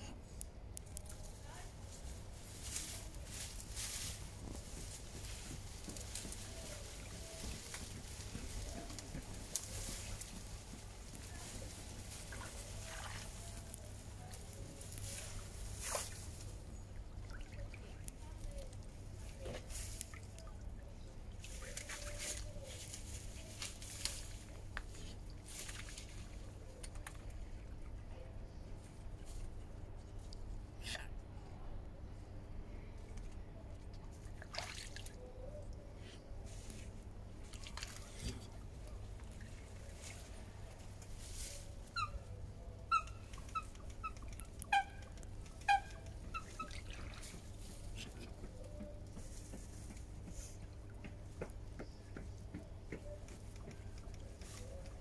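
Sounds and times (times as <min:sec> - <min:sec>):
swan bill splashing in water: 0:34.3 - 0:35.2.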